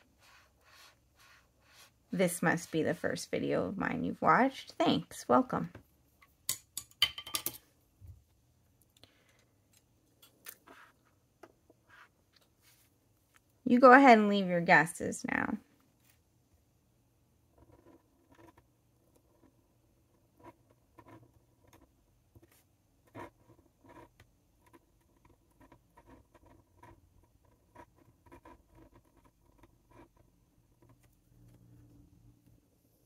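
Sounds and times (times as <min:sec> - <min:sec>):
pen nib scratching paper: 0:00.0 - 0:03.1, 0:17.5 - 0:31.6.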